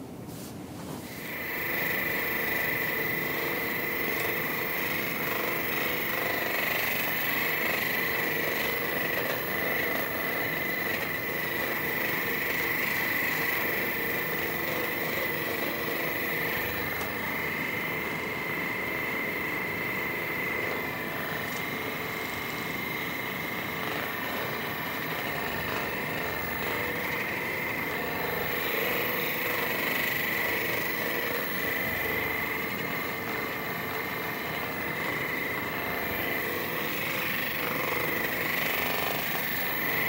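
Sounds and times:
small electric motor whining: 0:01.0 - 0:40.0.

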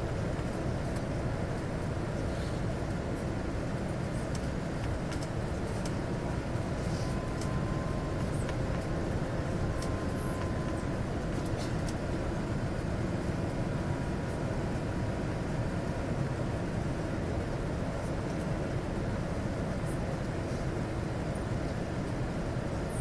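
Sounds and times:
faint steady whine: 0:00.0 - 0:23.0
jet engine and airflow noise: 0:00.0 - 0:23.0.

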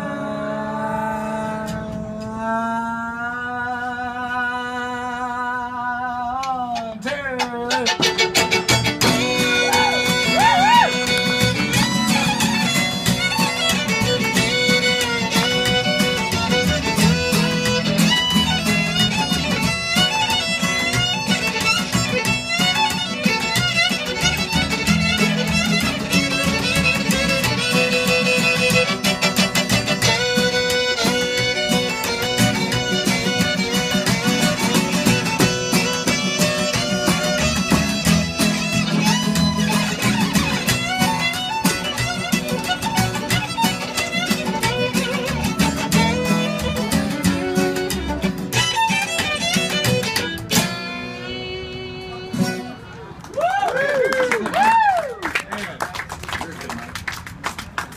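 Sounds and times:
upright bass: 0:00.0 - 0:53.0
strummed acoustic guitar: 0:00.0 - 0:53.2
mandolin: 0:06.4 - 0:53.2
fiddle melody: 0:07.6 - 0:53.0.

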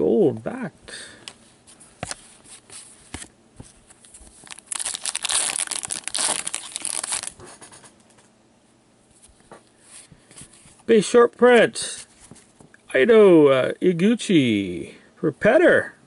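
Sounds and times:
foil wrapper crinkling: 0:04.0 - 0:07.8.

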